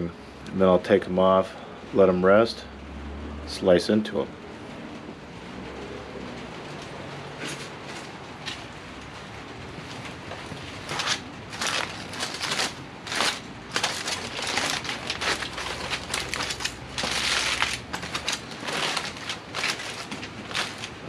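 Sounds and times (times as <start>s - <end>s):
aluminium foil crinkling: 10.3s - 21.0s.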